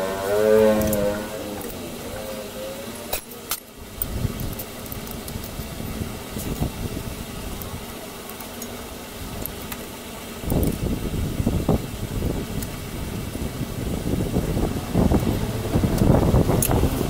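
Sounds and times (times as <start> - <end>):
low uneven rumbling: 12.8 - 17.0.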